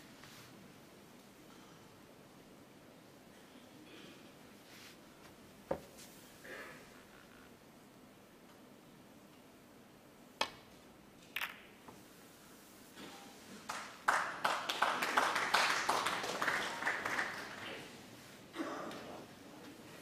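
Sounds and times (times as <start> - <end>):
snooker balls clicking: 10.4 - 12.0
crowd applauding: 13.7 - 17.9.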